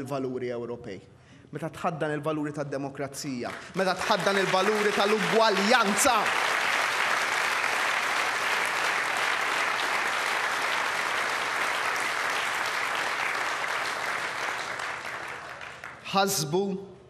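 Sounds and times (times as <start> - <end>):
crowd applauding: 3.4 - 16.4.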